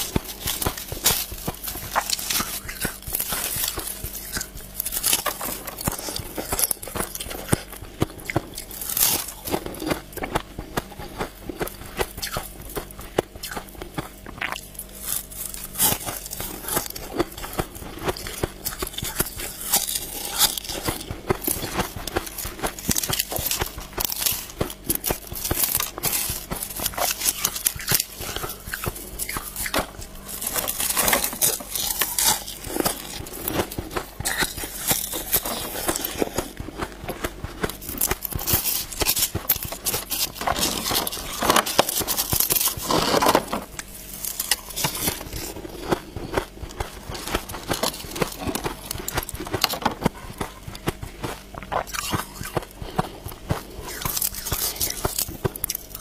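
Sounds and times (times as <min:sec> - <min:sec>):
ice crunching: 0:00.0 - 0:56.0
ice scraping: 0:15.1 - 0:50.1.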